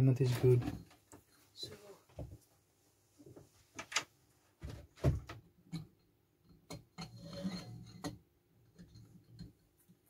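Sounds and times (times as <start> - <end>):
metal scraping and rubbing: 7.0 - 8.1.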